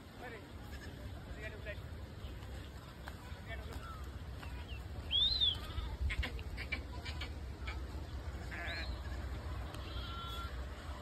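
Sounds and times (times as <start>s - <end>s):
low steady rumble: 0.0s - 11.0s
goats bleating: 0.6s - 1.1s, 5.5s - 10.8s.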